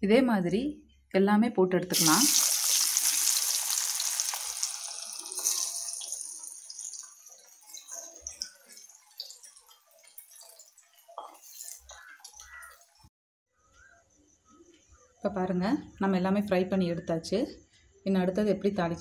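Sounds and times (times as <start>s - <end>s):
food deep-frying in oil: 1.9s - 13.1s.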